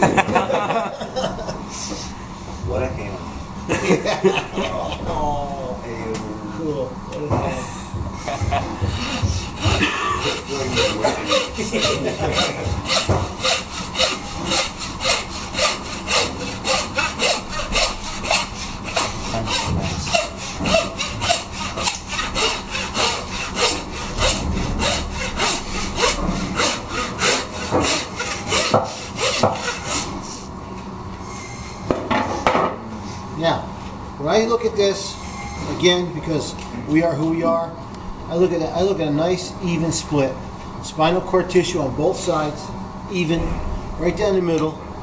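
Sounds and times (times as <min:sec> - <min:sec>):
hand saw cutting bone: 0:08.3 - 0:30.2.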